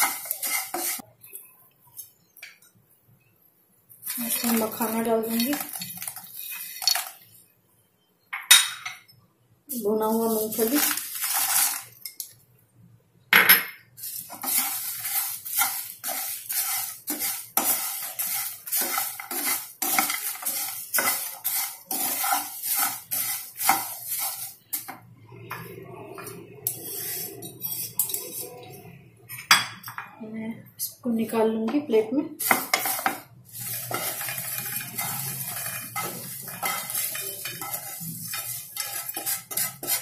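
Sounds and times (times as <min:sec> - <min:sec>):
peanuts rattling into pan: 0:00.0 - 0:01.0, 0:04.0 - 0:07.3, 0:09.7 - 0:12.3, 0:14.0 - 0:24.9, 0:32.4 - 0:40.0
spatula scraping frying pan: 0:00.0 - 0:01.1, 0:04.0 - 0:07.2, 0:10.2 - 0:12.2, 0:14.0 - 0:25.0, 0:26.7 - 0:28.5, 0:32.4 - 0:40.0.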